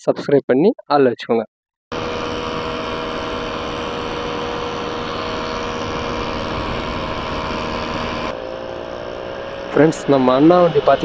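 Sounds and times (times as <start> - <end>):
motorcycle engine cruising: 1.9 - 11.0
wind noise: 5.2 - 8.3.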